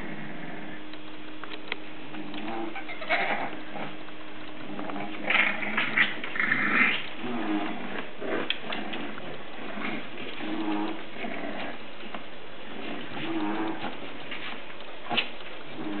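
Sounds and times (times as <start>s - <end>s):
puppies crying and whining: 2.3s - 4.0s.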